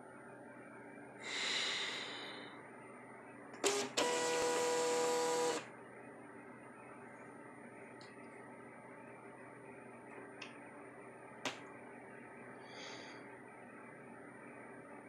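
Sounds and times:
label printer feed motor whine: 0:03.6 - 0:05.8.

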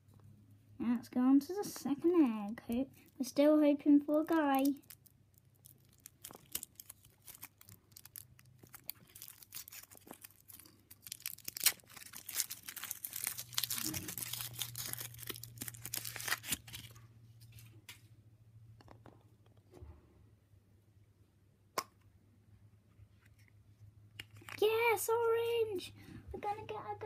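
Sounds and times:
foil wrapper crinkling: 0:04.2 - 0:17.0.

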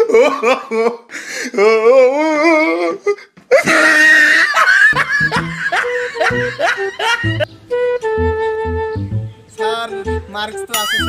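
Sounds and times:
loud human laughter: 0:00.0 - 0:01.1, 0:03.5 - 0:07.4.

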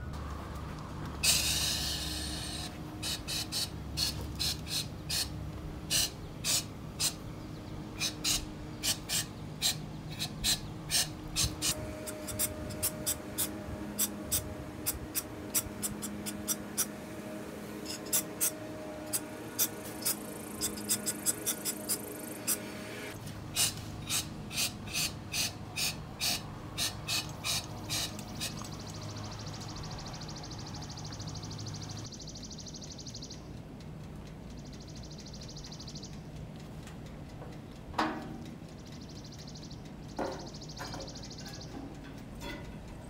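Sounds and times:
hand tool scraping metal: 0:08.0 - 0:16.9, 0:17.8 - 0:22.8.

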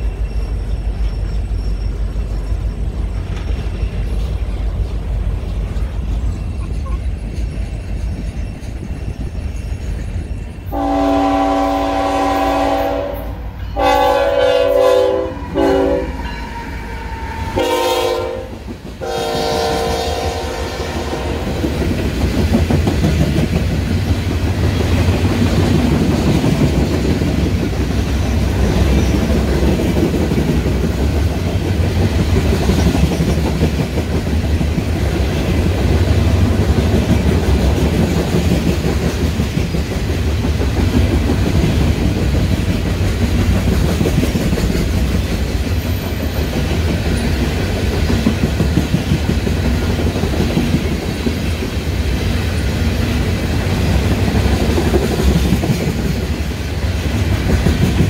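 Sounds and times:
locomotive air horn blasts: 0:10.7 - 0:16.3, 0:17.0 - 0:21.5
train wheels clicking over rails: 0:18.4 - 0:58.0.

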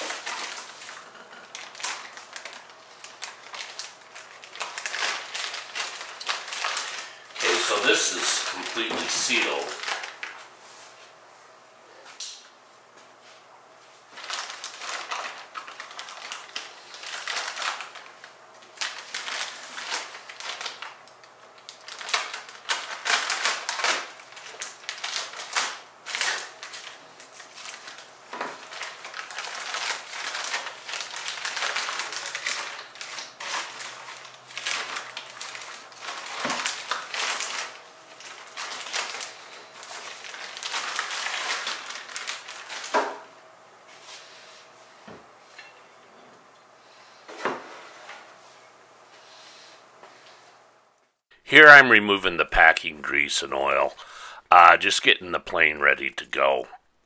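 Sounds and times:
plastic bag crinkling: 0:00.0 - 0:10.4, 0:14.1 - 0:43.2.

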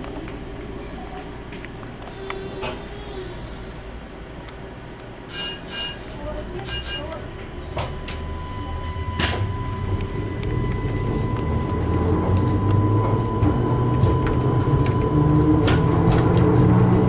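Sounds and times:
train running rumble: 0:00.0 - 0:17.0
high steady whine: 0:03.5 - 0:17.0.

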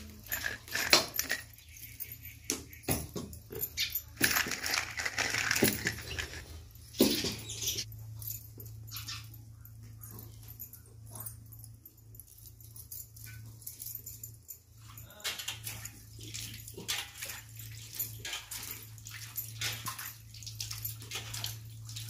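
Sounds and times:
metal plates clinking on concrete: 0:00.0 - 0:07.9.

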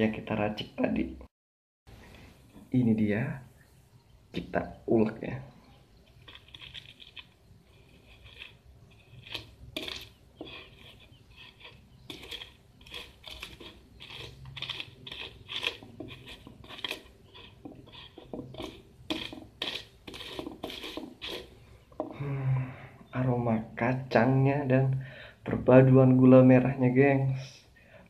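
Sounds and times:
pestle grinding in mortar: 0:06.1 - 0:22.2.

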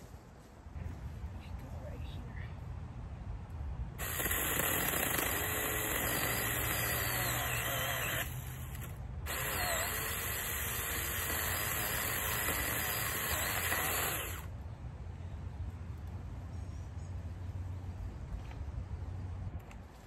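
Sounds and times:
mini chainsaw whirring: 0:04.0 - 0:14.5.

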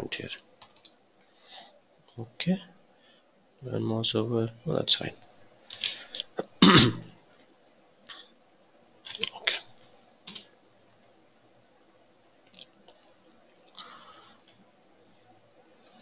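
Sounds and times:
keyboard and mouse clicks: 0:09.1 - 0:09.4, 0:10.3 - 0:10.5.

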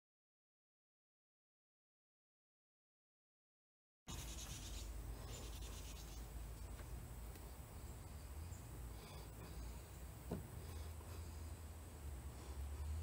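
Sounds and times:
low steady hum: 0:04.1 - 0:13.0.

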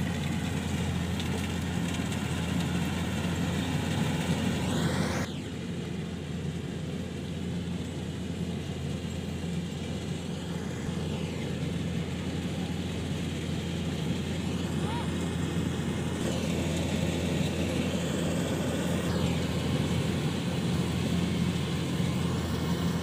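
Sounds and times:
combine harvester engine humming: 0:00.0 - 0:23.0
higher-pitched noise: 0:16.2 - 0:23.0.

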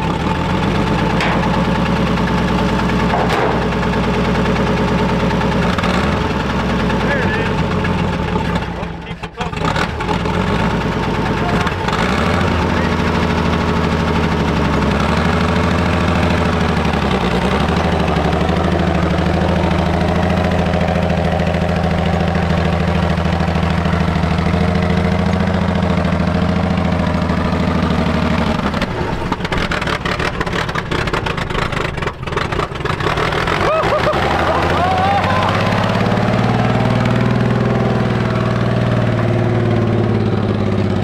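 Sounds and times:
truck engine running: 0:00.0 - 0:41.0
uneven rattly noise: 0:00.6 - 0:08.8, 0:27.5 - 0:33.6.

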